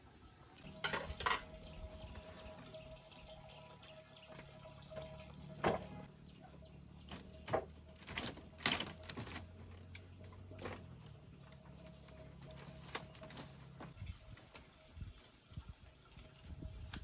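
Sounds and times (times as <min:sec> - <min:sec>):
bamboo slats creaking: 0:07.1 - 0:11.1.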